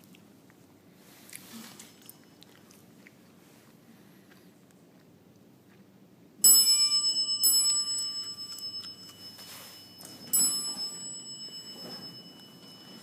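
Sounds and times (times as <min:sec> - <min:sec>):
elevator chime ding: 0:06.4 - 0:13.0.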